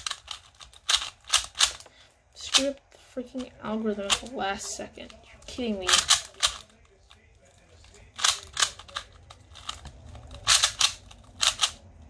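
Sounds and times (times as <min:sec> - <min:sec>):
puzzle cube clicking: 0:00.0 - 0:01.9, 0:05.0 - 0:07.2, 0:07.8 - 0:12.0.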